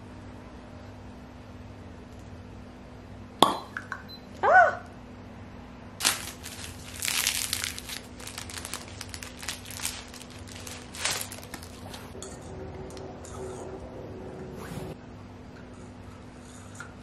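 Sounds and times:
wrapper crinkling and tearing: 6.0s - 12.1s.

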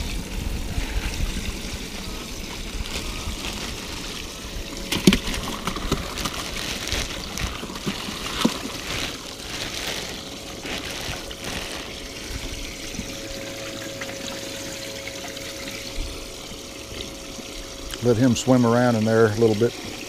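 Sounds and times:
faint steady hum: 0.0s - 20.0s
water trickling and splashing: 0.0s - 20.0s
plastic bag rustling: 1.9s - 14.5s.

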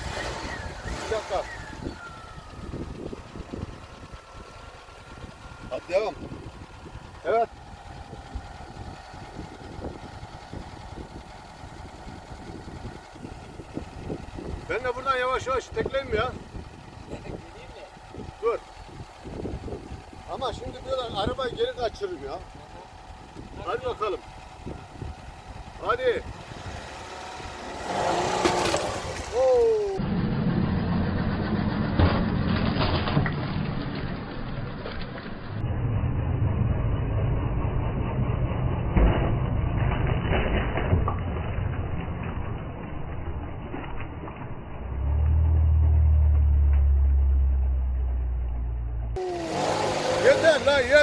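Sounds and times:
car engine idling: 0.0s - 30.1s, 44.7s - 51.0s
person calling out: 29.3s - 30.0s, 49.2s - 49.8s.

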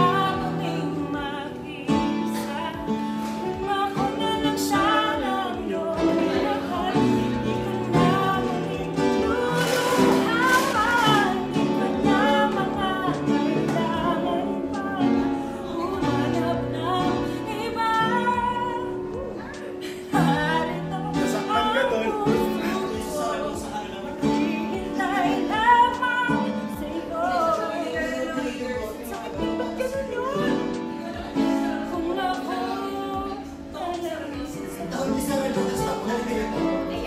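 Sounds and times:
piano: 0.0s - 37.0s
woman singing: 0.0s - 37.0s.

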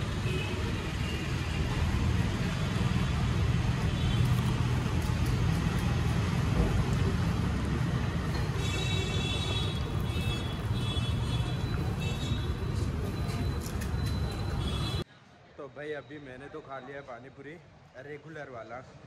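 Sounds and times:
road traffic rumble: 0.0s - 15.1s.

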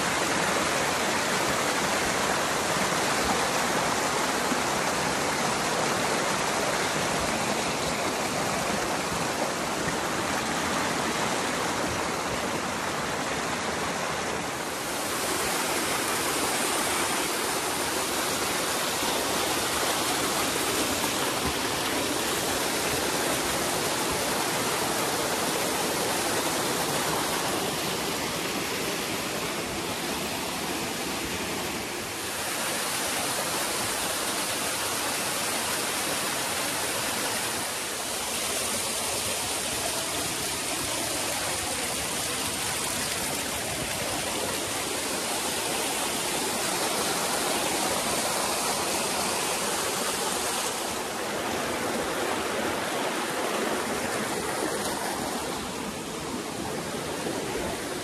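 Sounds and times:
stream rushing over rocks: 0.0s - 58.0s.

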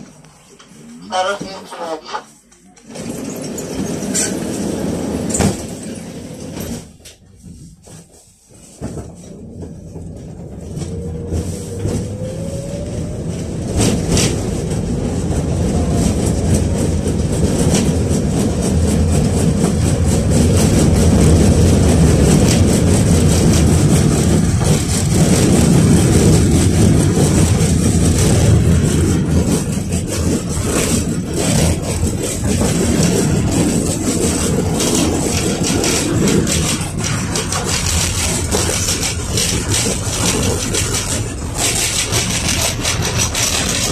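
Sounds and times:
wheels rumbling on rails: 0.0s - 43.9s
tram motor whine: 9.0s - 43.9s.

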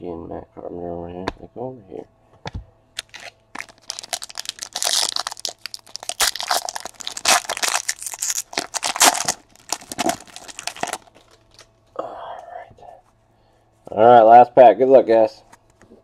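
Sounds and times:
foil wrapper tearing and crinkling: 3.0s - 11.6s.

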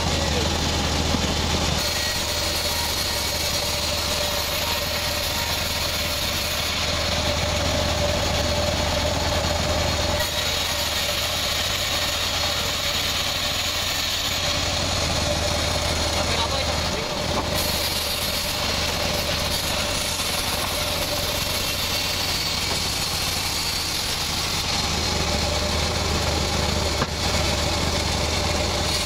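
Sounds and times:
band saw rasping through wood: 0.0s - 29.0s
high machine whine: 0.0s - 29.0s.

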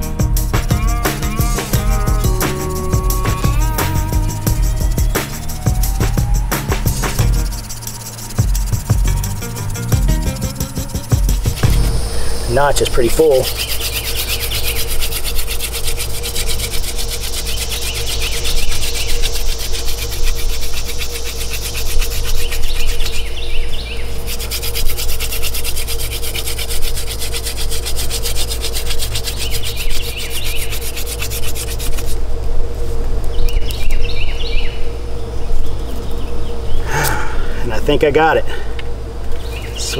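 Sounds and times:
hand drill rasping on wood: 2.1s - 11.7s, 12.8s - 23.2s, 24.2s - 32.2s.

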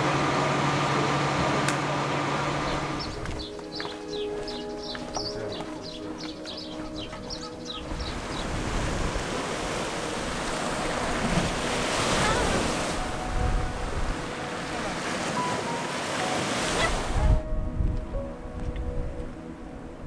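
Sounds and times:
wind buffeting microphone: 2.5s - 15.0s, 16.8s - 20.0s
waves breaking on pebbly shore: 8.1s - 13.1s.

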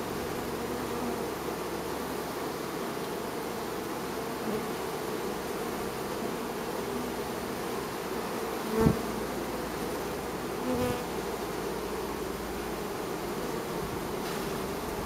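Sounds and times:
bee flying past buzzing: 0.0s - 15.0s
honey bees buzzing: 0.0s - 15.0s.

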